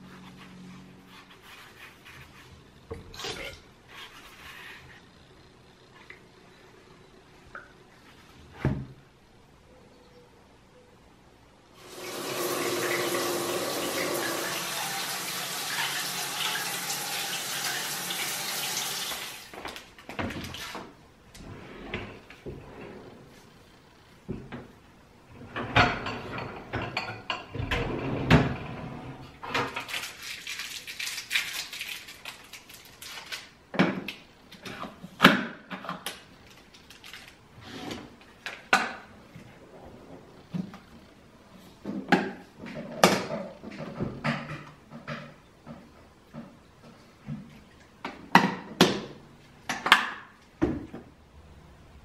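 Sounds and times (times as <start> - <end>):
shower head spraying water: 11.8 - 19.3
dishes clinking in dishwasher rack: 25.5 - 28.6.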